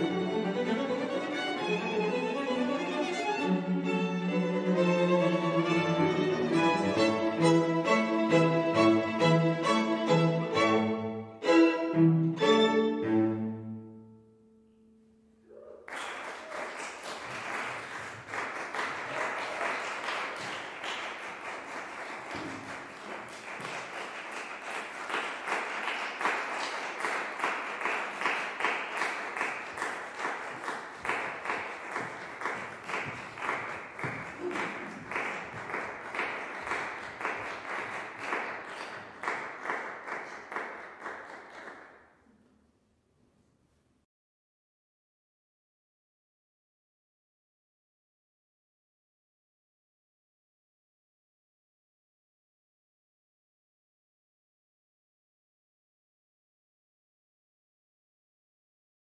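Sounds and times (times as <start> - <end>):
audience applauding: 15.8 - 42.0.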